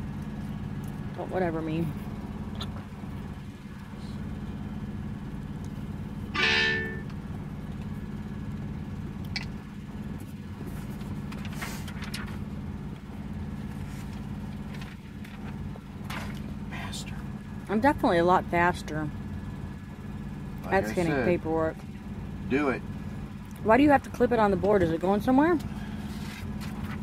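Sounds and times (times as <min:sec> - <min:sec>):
diesel truck engine idling: 0:00.0 - 0:27.0
loud pitched blast: 0:06.3 - 0:07.1.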